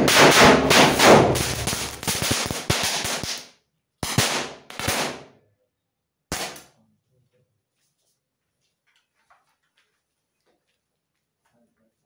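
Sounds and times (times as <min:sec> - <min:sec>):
bursts of popping: 0:00.0 - 0:05.3, 0:06.3 - 0:06.6
firecrackers banging: 0:00.0 - 0:05.3, 0:06.3 - 0:06.6.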